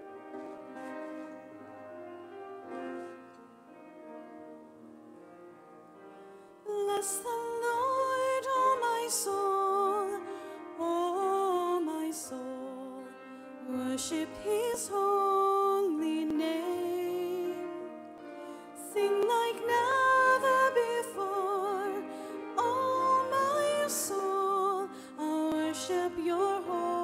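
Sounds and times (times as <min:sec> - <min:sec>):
held accompaniment chords: 0:00.0 - 0:27.0
person singing with vibrato: 0:06.6 - 0:27.0.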